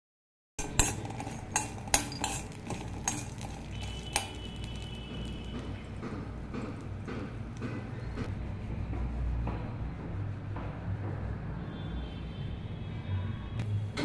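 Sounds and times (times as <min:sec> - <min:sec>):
metal utensils clinking on cookware: 0:00.6 - 0:04.9.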